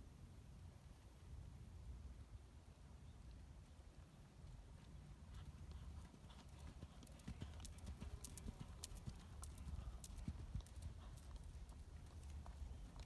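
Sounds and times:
horse hoofbeats on sand: 5.3s - 13.0s.

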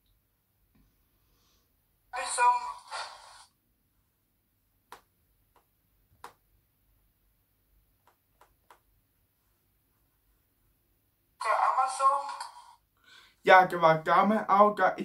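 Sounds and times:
fingertip taps on touchscreen: 4.9s - 6.4s, 8.0s - 8.9s.

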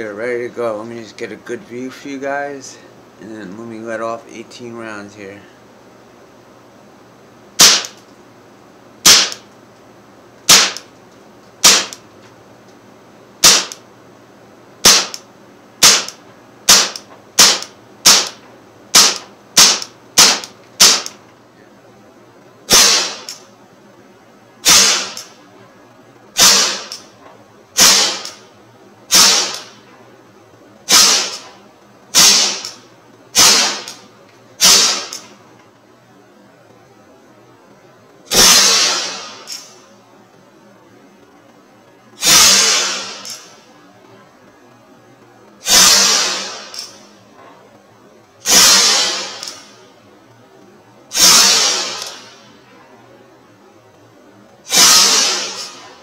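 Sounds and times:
bb pistol shots popping: 7.6s - 8.0s, 9.0s - 9.4s, 10.5s - 10.9s, 11.6s - 12.0s, 13.4s - 13.8s, 14.8s - 15.2s, 15.8s - 21.2s, 22.7s - 23.4s, 26.4s - 27.0s, 27.8s - 28.4s, 30.9s - 31.5s, 33.4s - 34.0s.

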